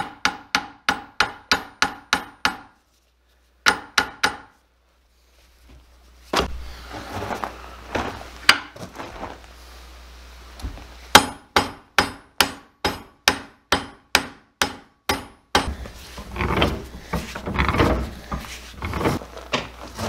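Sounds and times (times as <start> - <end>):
scraping and handling noise: 4.8 - 9.8, 15.7 - 20.0.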